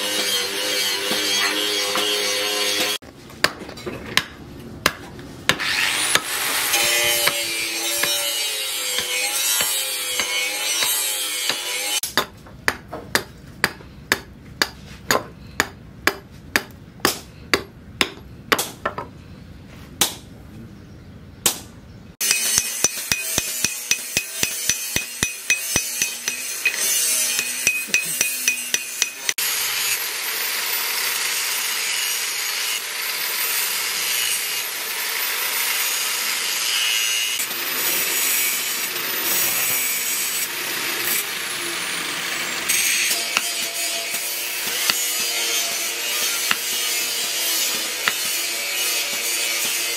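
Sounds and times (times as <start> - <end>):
angle grinder grinding steel: 0.0 - 3.0, 5.6 - 12.0, 22.2 - 49.9
hammer blows ringing: 22.2 - 29.4, 42.7 - 49.8.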